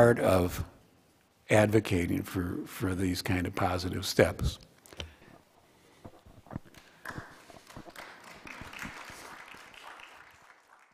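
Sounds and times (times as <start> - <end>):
audience applause: 6.7 - 10.9.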